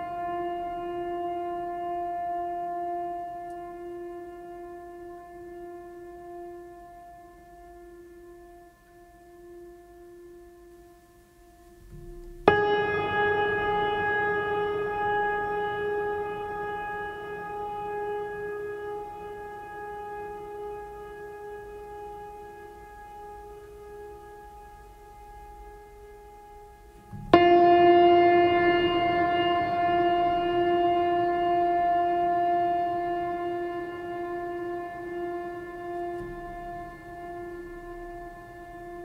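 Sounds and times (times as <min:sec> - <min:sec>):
eerie horn-like tones: 0:27.0 - 0:39.0.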